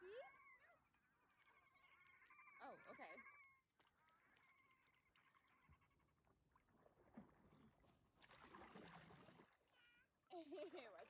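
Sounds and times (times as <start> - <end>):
faint animal calls: 0.0 - 6.4
water splashing: 6.6 - 9.7.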